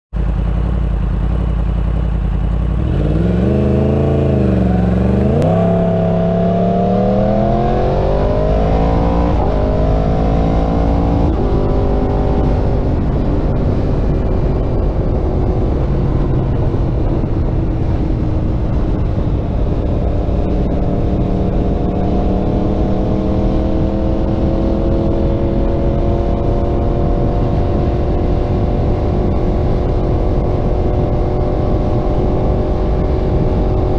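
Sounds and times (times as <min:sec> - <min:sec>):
wind and road noise: 0:00.1 - 0:33.9
motorcycle engine revving: 0:00.2 - 0:33.9.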